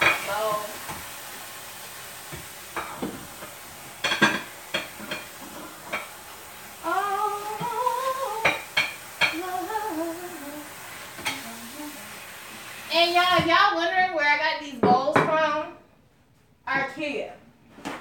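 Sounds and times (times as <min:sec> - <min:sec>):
dishes clinking and clattering: 0:02.3 - 0:06.2, 0:08.4 - 0:09.4, 0:11.1 - 0:11.5
woman humming: 0:09.4 - 0:12.3.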